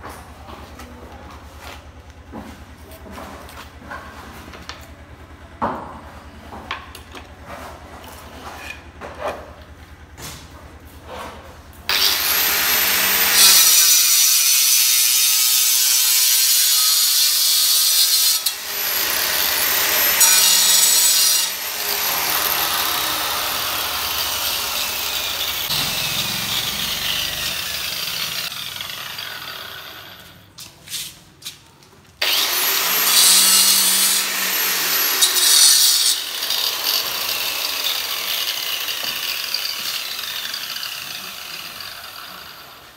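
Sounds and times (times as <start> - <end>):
electric marble cutter cutting: 11.9 - 30.4, 32.2 - 42.9.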